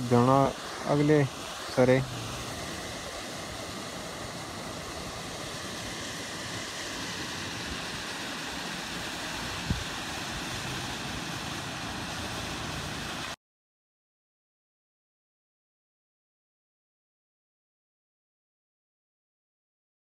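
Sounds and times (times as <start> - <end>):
water rushing over rocks: 0.0 - 13.4.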